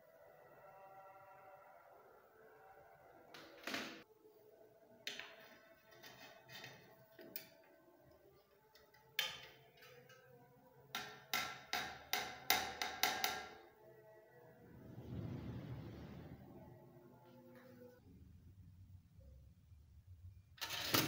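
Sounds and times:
low rustle: 0:14.6 - 0:18.0.

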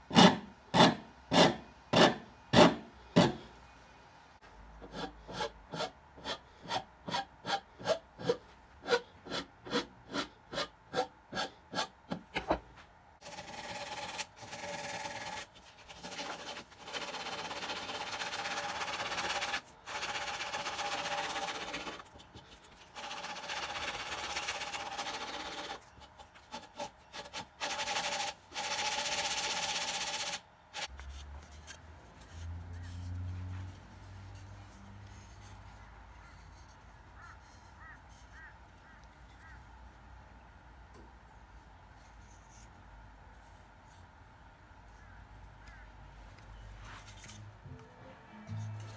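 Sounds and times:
sanding: 0:13.2 - 0:25.8.

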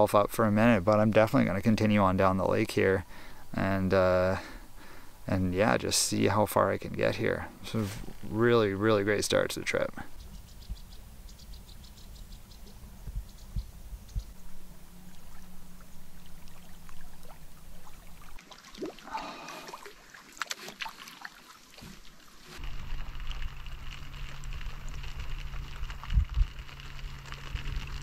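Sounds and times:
steady low rumble: 0:04.7 - 0:18.3, 0:22.6 - 0:28.0
water splashing and trickling: 0:14.3 - 0:28.0.

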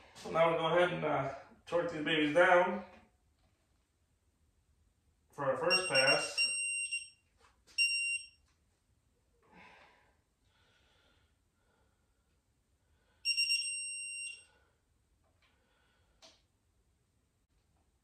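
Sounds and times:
torque wrench high beep: 0:05.7 - 0:07.1, 0:07.8 - 0:08.3, 0:13.3 - 0:14.5.

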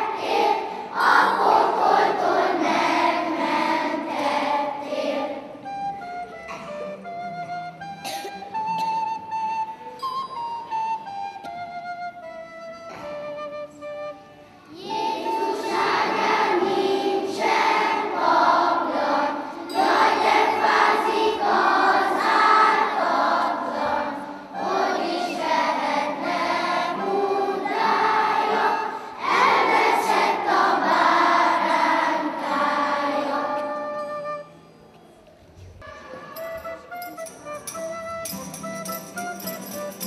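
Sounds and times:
children's choir singing: 0:00.0 - 0:06.7, 0:14.7 - 0:34.5.

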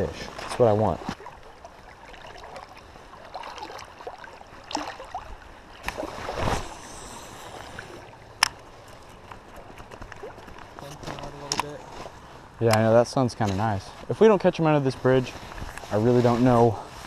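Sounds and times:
water rush: 0:00.0 - 0:11.4
river water lapping around legs: 0:00.0 - 0:12.6.

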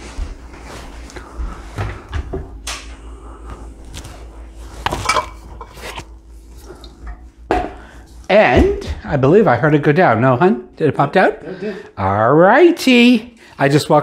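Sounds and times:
faint steady hum: 0:00.0 - 0:14.0
cookware clatter: 0:04.9 - 0:05.8.

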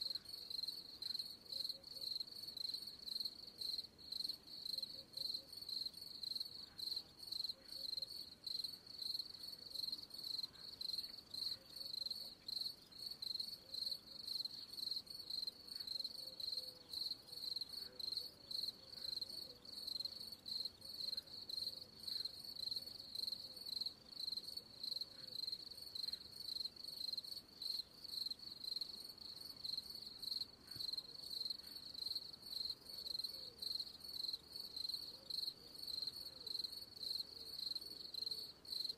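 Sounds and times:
cricket chirping: 0:00.0 - 0:38.9.

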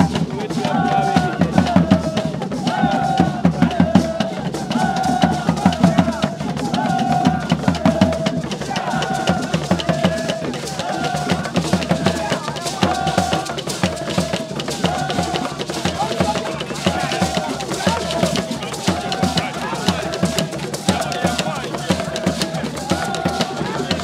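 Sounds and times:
drumming and percussion: 0:00.0 - 0:24.0.

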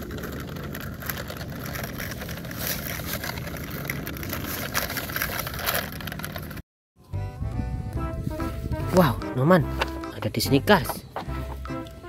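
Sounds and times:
scratchy speaker crackle: 0:00.0 - 0:06.6.

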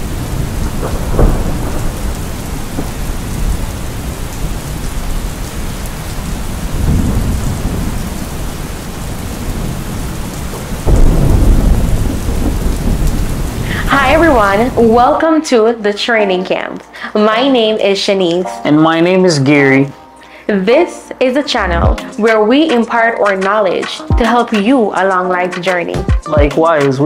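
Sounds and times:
rolling thunder: 0:00.0 - 0:15.0
steady rain: 0:00.0 - 0:15.4.

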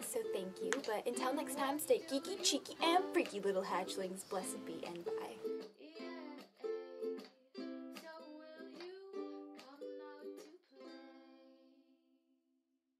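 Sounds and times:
plucked string chords: 0:00.0 - 0:08.0.

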